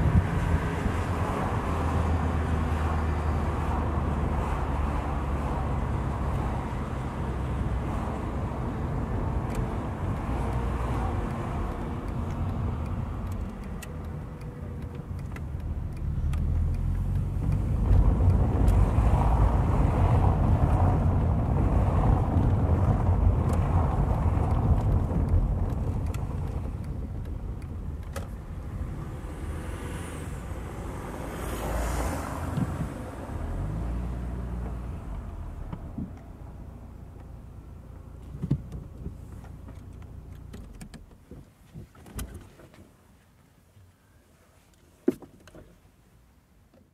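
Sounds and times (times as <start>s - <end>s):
car engine rumble: 0.0s - 46.9s.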